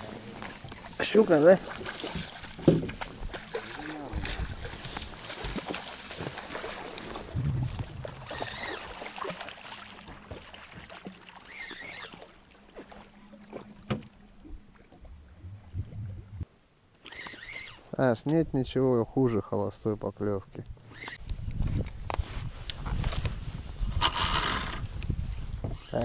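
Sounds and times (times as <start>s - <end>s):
tackle knocks and rustling: 2.1s - 3.2s
faint low hum: 12.4s - 16.9s.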